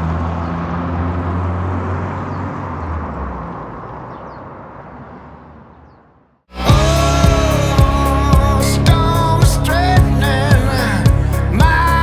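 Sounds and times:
distant traffic hum: 0.0s - 6.5s.

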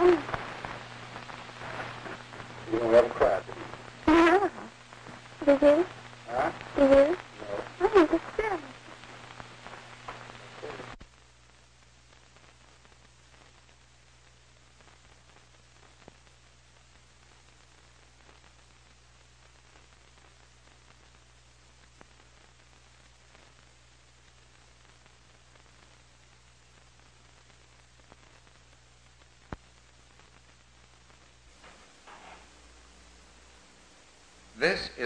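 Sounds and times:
recording hiss and hum: 0.0s - 35.0s
faint click: 29.5s - 29.7s.

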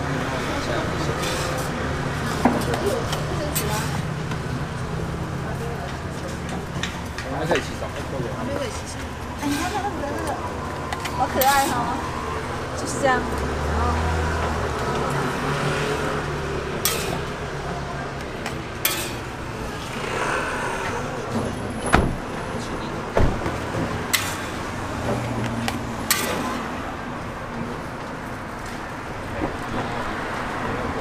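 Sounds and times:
busy market background noise: 0.0s - 31.0s
metal spatula scraping griddle: 1.2s - 2.4s, 9.4s - 10.0s, 16.8s - 17.3s, 18.8s - 21.1s, 24.1s - 24.7s, 26.1s - 26.6s.

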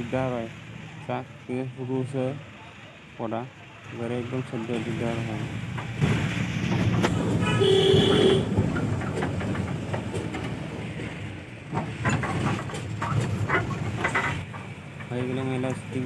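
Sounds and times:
engine and road noise in cabin: 0.0s - 16.0s
short vehicle horn blast: 7.4s - 8.5s.

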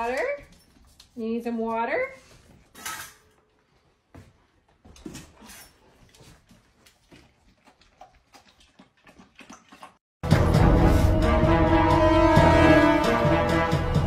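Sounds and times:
dog lapping water: 6.6s - 10.0s.

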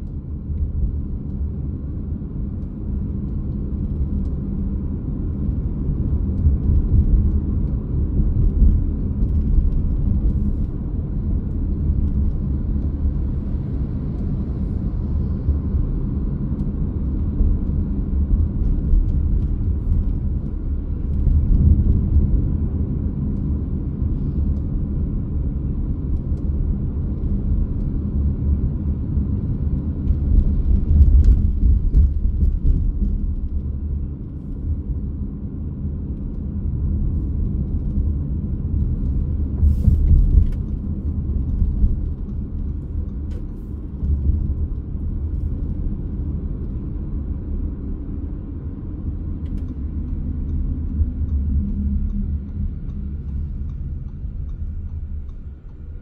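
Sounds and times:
road and engine rumble: 0.0s - 56.0s.

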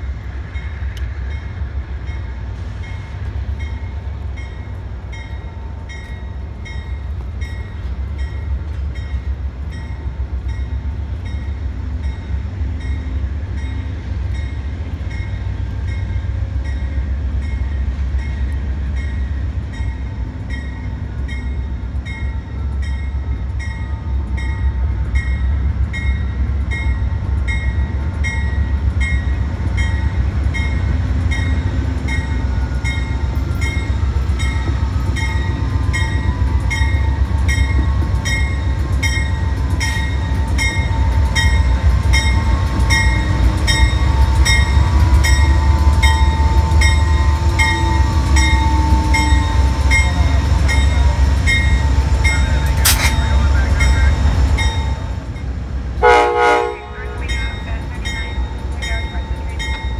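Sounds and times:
locomotive bell ringing: 4.4s - 59.9s
deep diesel engine rumble: 43.7s - 56.0s.

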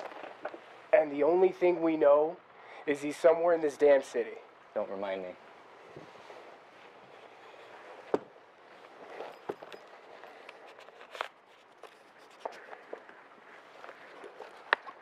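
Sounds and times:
footsteps: 5.8s - 15.0s.

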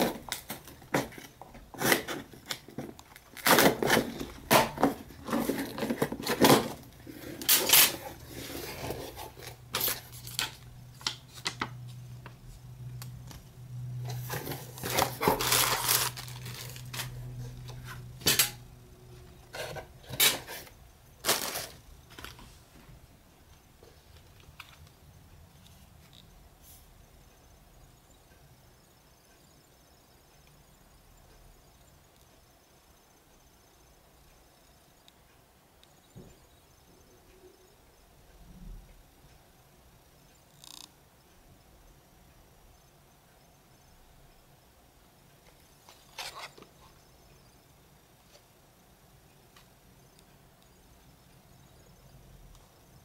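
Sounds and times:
plastic packaging rustling: 0.0s - 11.8s, 14.1s - 18.6s, 19.5s - 22.5s
scissors cutting packing tape: 3.3s - 4.9s, 7.4s - 8.0s, 14.7s - 17.2s.

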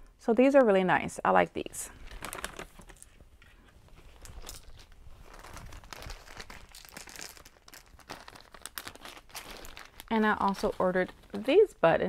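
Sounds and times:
packaging crinkling: 2.0s - 11.7s.

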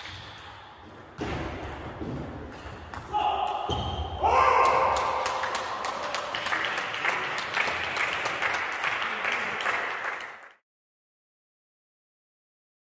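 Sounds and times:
applause: 4.6s - 10.6s.

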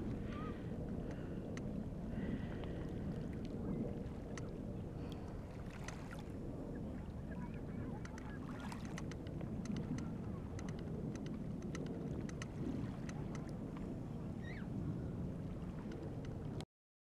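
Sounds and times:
lake waves lapping and splashing: 0.0s - 16.6s
faint waterfowl calls: 14.4s - 14.7s.

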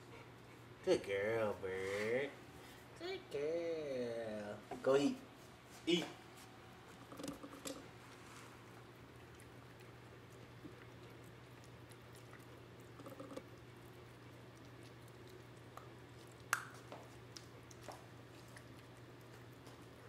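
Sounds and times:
faint low hum: 0.0s - 20.0s
puppy chewing wetly: 6.4s - 20.0s.

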